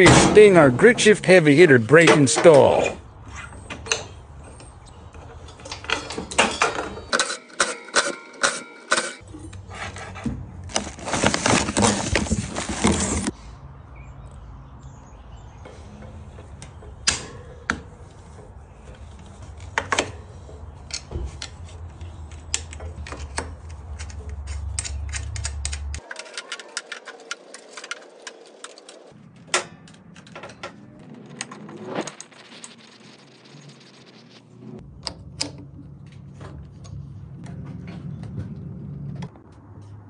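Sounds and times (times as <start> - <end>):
metallic clicks of hand tools: 22.4 - 26.3
low hum: 29.2 - 40.0.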